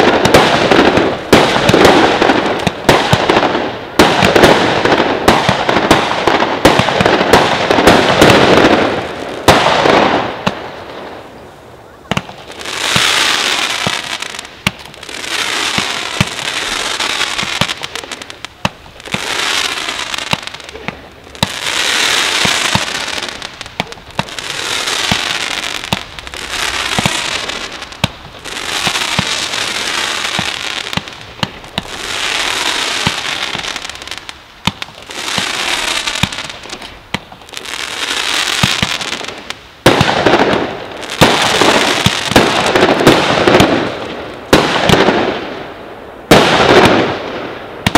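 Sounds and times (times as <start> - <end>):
fireworks hissing: 7.9 - 44.6
fireworks launch pops: 12.1 - 37.5, 46.3 - 47.9.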